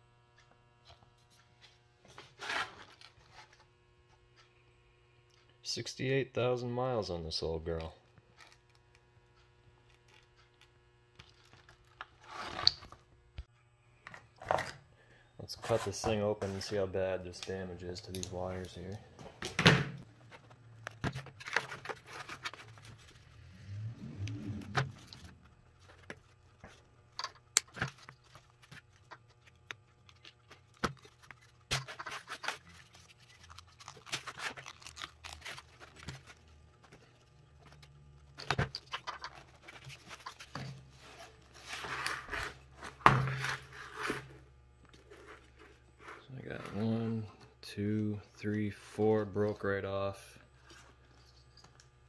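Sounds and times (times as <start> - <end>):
hands handling wiring: 16.1 - 23.4, 24.3 - 44.2.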